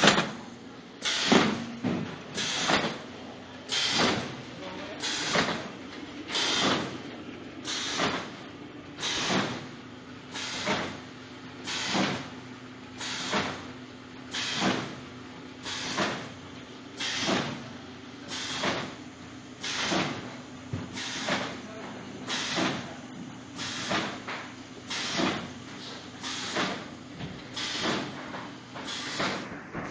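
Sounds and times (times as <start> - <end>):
machine hum: 0.0 - 13.0.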